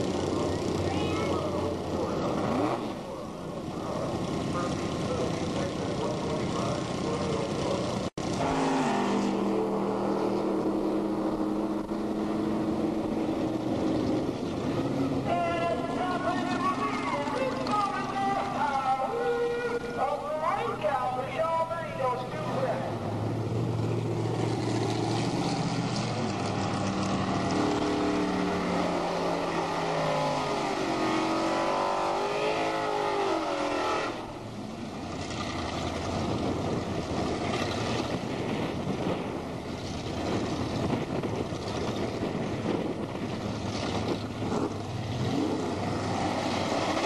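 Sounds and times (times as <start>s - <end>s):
car engine revving hard: 8.3s - 14.0s, 26.4s - 34.4s, 44.5s - 47.0s.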